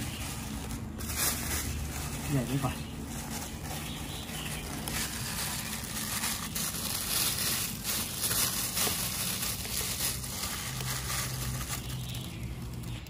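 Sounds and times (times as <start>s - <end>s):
oil crackling in a pan: 4.4s - 13.0s.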